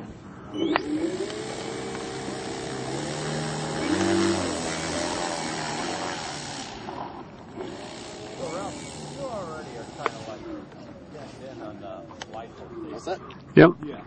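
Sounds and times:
model plane engine revving: 0:00.7 - 0:10.8.

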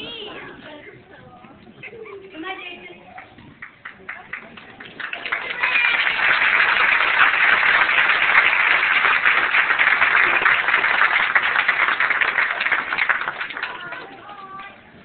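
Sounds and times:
audience applauding: 0:03.1 - 0:15.0.

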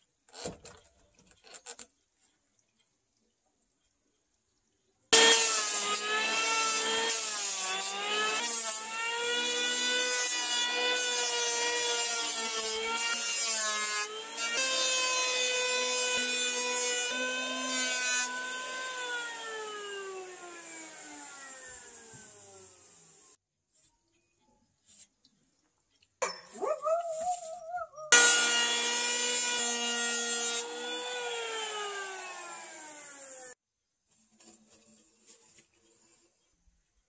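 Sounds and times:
electric hand planer whining: 0:05.2 - 0:23.4, 0:28.1 - 0:33.6.

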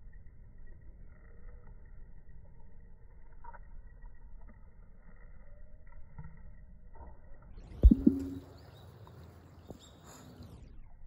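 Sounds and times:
sharp thump: 0:07.8 - 0:08.4
brief low tone: 0:07.8 - 0:08.5.

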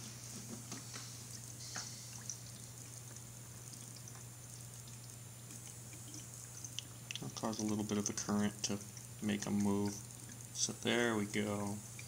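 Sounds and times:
water trickling: 0:00.3 - 0:12.0
small ticks: 0:01.7 - 0:07.3.

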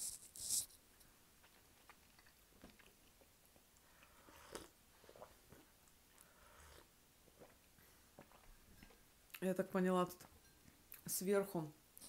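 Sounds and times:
chewing candies: 0:01.4 - 0:07.6.

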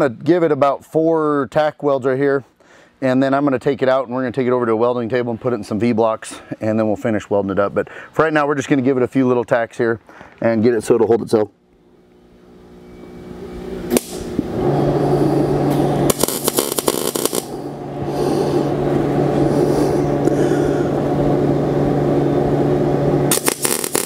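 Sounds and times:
steady machine hum: 0:00.4 - 0:24.0
welding arc crackling: 0:13.9 - 0:14.4, 0:16.0 - 0:17.6, 0:23.3 - 0:24.0.

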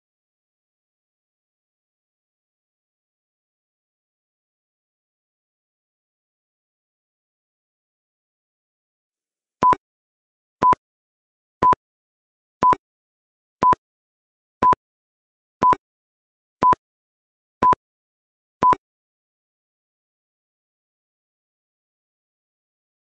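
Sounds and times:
timer beeping: 0:09.6 - 0:09.8, 0:18.6 - 0:18.8.

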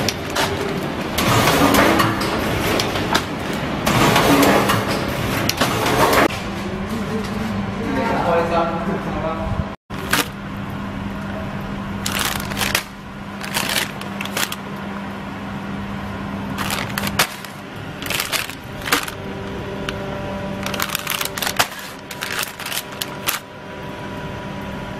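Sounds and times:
steady low hum: 0:06.2 - 0:24.9
plastic bags crinkling: 0:09.9 - 0:10.4, 0:12.0 - 0:14.6, 0:16.5 - 0:19.9, 0:20.6 - 0:23.5.

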